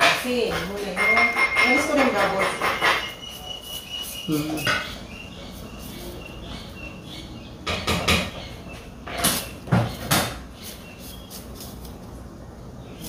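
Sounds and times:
kitchen knocks and scrapes: 0.0 - 3.4, 4.6 - 5.1, 7.7 - 8.4, 9.0 - 10.6.

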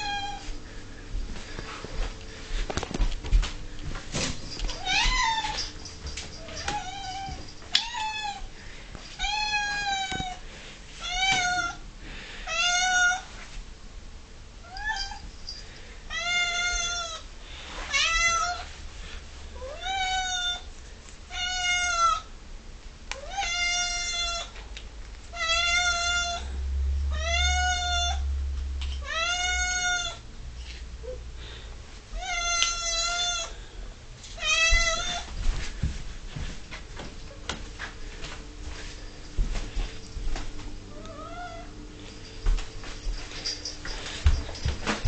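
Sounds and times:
cat meowing: 12.5 - 13.3, 19.6 - 20.7, 23.2 - 24.5, 25.4 - 26.5, 27.1 - 28.2, 29.0 - 30.2.

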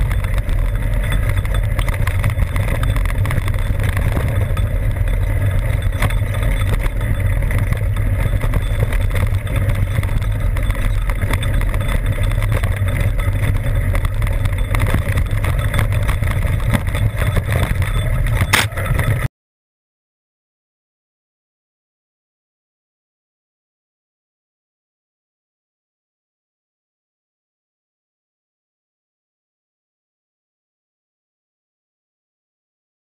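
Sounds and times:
bike rattling on rough trail: 0.0 - 19.3
wind rumbling on microphone: 0.0 - 19.3
sharp knock: 18.5 - 18.8.

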